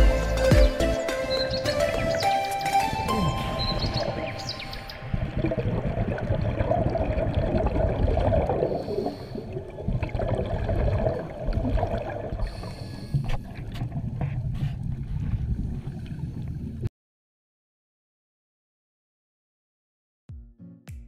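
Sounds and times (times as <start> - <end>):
bubbling of exhaled air: 3.0 - 16.8
low underwater rumble: 3.0 - 16.9.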